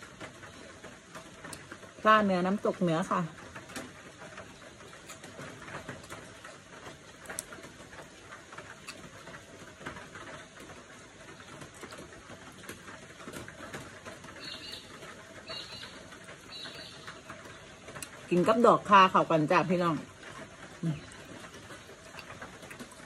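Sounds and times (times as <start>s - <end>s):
chewing and crunching: 20.2s - 23.0s.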